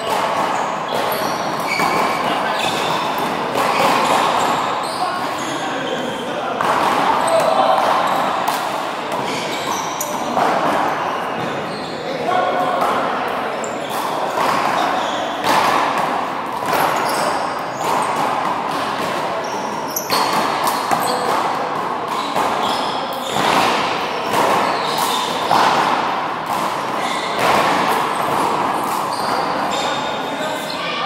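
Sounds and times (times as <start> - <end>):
handball smacking wall and floor: 0.0 - 4.8, 14.0 - 29.9.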